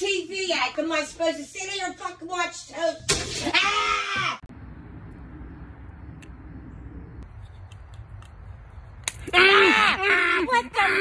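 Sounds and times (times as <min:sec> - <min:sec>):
low rumble: 0:04.5 - 0:07.3.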